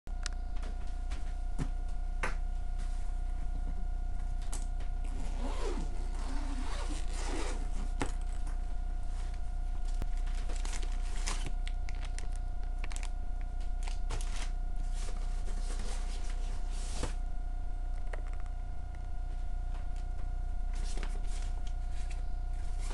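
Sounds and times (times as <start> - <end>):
steady electrical hum: 0.1 - 22.9
bag zipper opening: 5.1 - 7.7
paper and plastic rustling: 10.1 - 13.1, 13.8 - 17.2.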